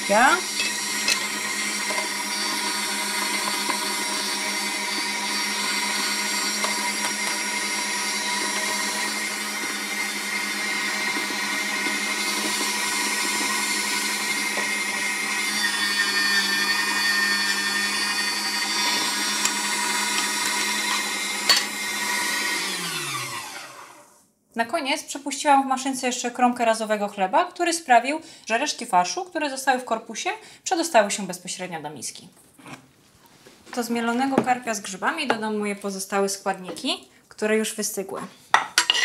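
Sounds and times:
electric meat grinder running: 0.0s - 24.1s.

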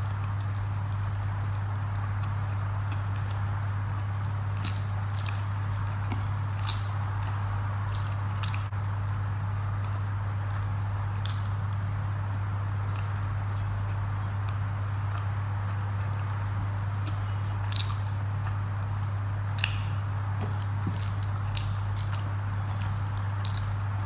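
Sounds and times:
steady low hum: 0.0s - 24.0s
wet chewing: 0.0s - 24.0s
rice squishing by hand: 19.5s - 24.0s.

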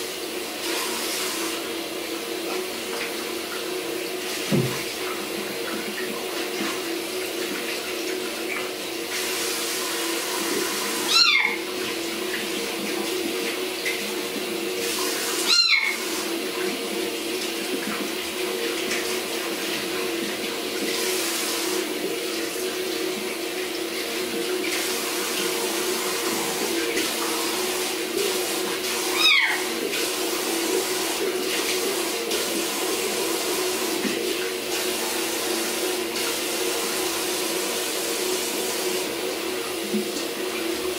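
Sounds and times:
tap water running: 0.0s - 40.9s
kitten meowing: 11.1s - 11.6s, 15.5s - 16.0s, 29.1s - 29.6s.

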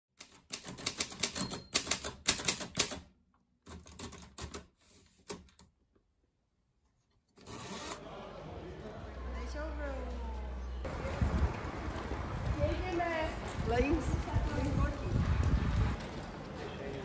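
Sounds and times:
typewriter key strikes: 0.2s - 3.0s
steady background noise: 7.4s - 17.0s.

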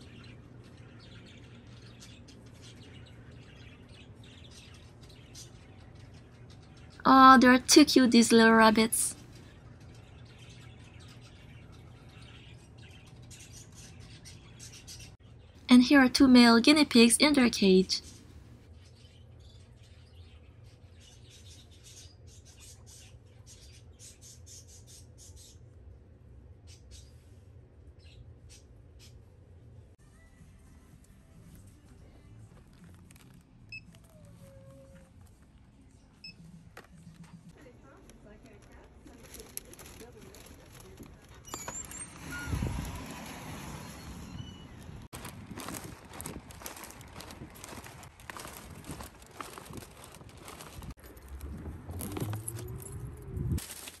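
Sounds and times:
small birds chirping: 0.0s - 25.8s, 37.0s - 51.0s.

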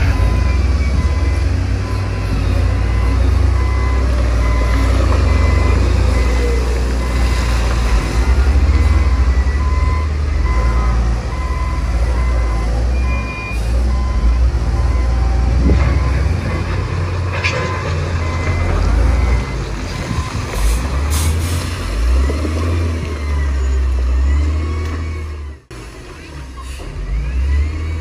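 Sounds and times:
reversing alarm beeping: 0.0s - 16.6s, 17.6s - 20.4s
heavy diesel engines rumbling: 0.0s - 28.0s.

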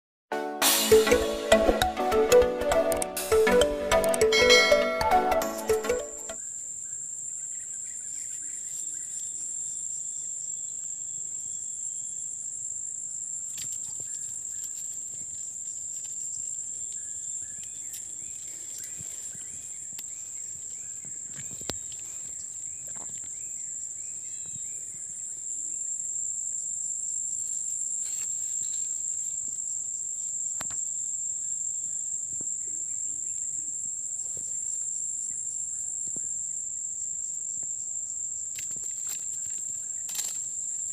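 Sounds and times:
insects shrilling: 25.3s - 35.4s.

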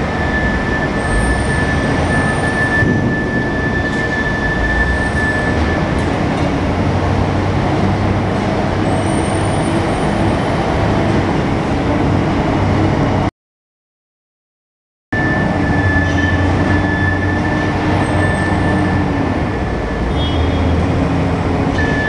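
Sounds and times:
high steady whine: 0.0s - 6.0s
diesel engine running: 0.0s - 13.3s, 15.2s - 22.0s
industrial din with low hum: 0.0s - 13.3s.

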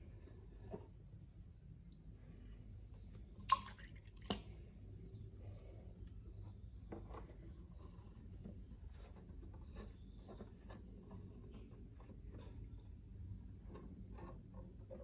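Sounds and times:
faint low pump hum: 0.0s - 15.0s
water dripping: 2.9s - 5.3s
water splashing: 3.4s - 4.6s.

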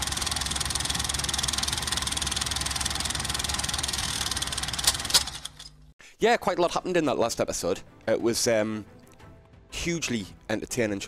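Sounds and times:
film projector clattering: 0.0s - 5.8s
sharp clicks: 4.0s - 5.8s.

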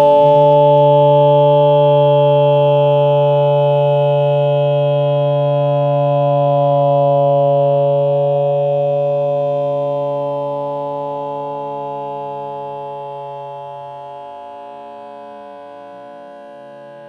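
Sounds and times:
steady held tone: 0.0s - 17.0s.

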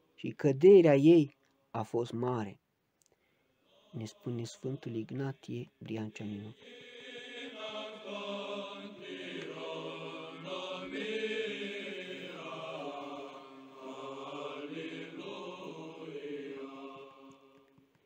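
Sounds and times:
voices chanting: 3.7s - 5.2s, 6.2s - 17.6s.

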